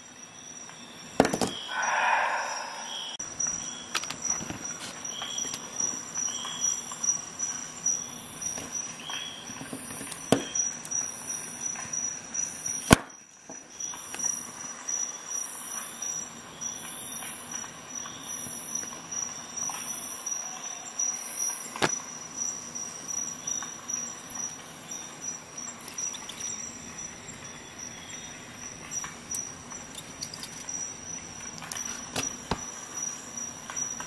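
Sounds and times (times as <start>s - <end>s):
thin high whine: 1.5s - 3.8s
small metal parts clicking: 25.8s - 26.5s, 29.3s - 30.8s.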